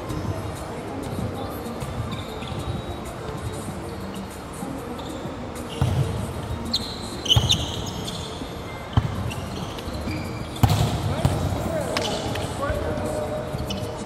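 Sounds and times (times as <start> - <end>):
shoe squeaks: 1.1 - 14.0
volleyball hits echoing: 10.6 - 12.8.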